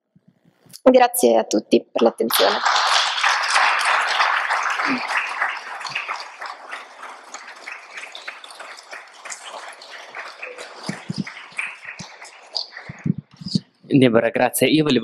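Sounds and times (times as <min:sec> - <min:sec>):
audience applause: 0:02.3 - 0:13.7.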